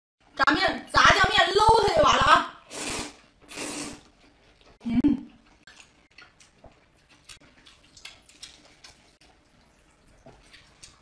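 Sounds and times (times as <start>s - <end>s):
noodles slurped: 2.7s - 4.8s
wet chewing with mouth clicks: 3.0s - 11.0s.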